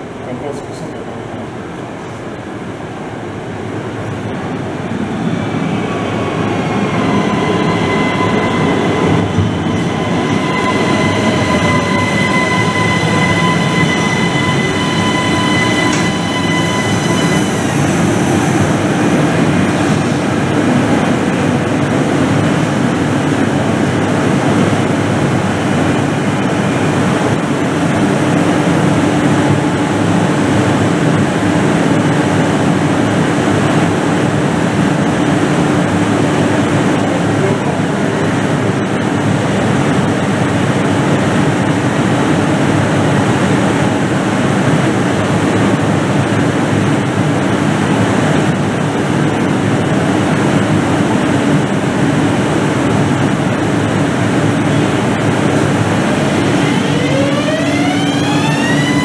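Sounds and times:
low electrical hum of train: 0.0 - 59.0
train brakes squealing: 5.0 - 20.5, 54.6 - 59.0.

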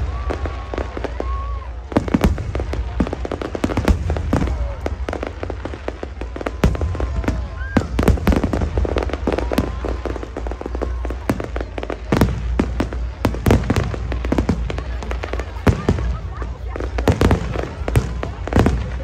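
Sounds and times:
fireworks bangs and crackles: 0.0 - 19.0.

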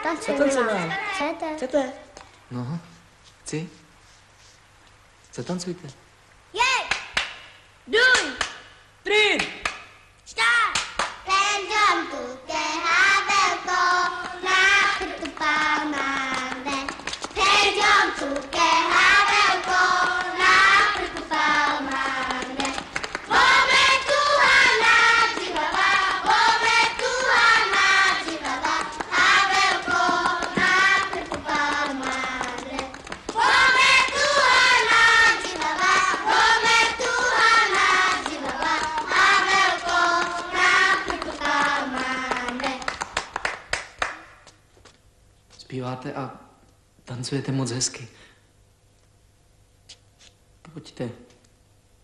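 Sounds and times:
rhythmic hand clapping: 6.8 - 8.7, 9.3 - 10.0, 10.7 - 11.3, 12.7 - 44.6
children singing: 17.4 - 42.7.

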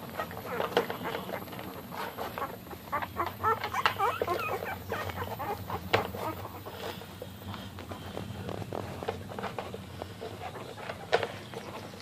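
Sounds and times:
puppies squeaking and whimpering: 0.0 - 8.6.

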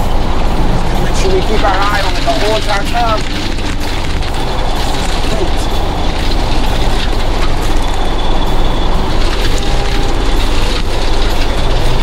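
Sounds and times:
tractor engine under load: 0.0 - 12.0.

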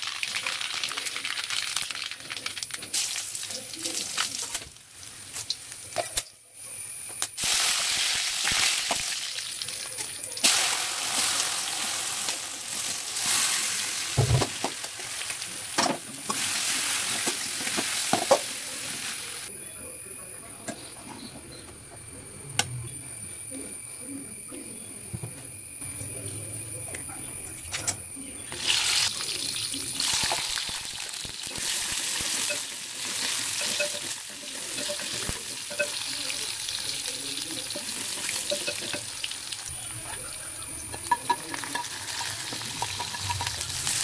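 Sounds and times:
seeds sizzling in hot oil: 0.0 - 19.5, 28.5 - 44.0.

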